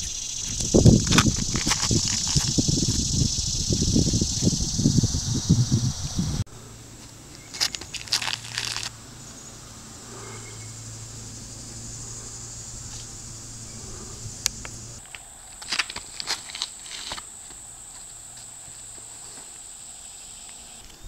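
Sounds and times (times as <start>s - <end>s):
steady high hiss: 0.0s - 21.0s
footsteps scuffing on pad: 7.0s - 8.9s, 15.6s - 19.6s.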